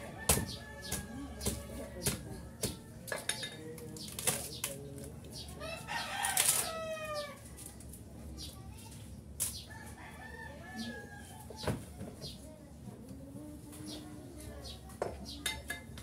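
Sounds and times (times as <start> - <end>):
rooster crowing: 9.7 - 11.6.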